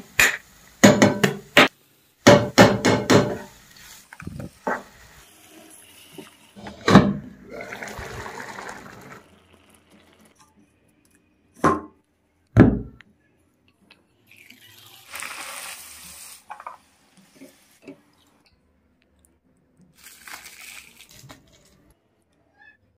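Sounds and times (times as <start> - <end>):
bread sizzling in hot oil: 1.6 - 6.6, 14.3 - 17.8.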